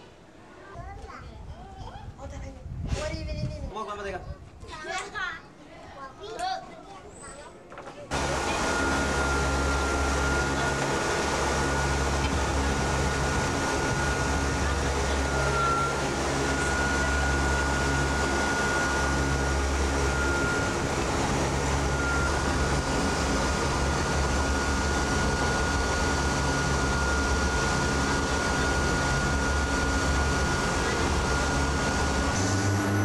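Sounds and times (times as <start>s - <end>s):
aircraft engine drone: 8.1s - 33.0s
high steady whine: 8.1s - 33.0s.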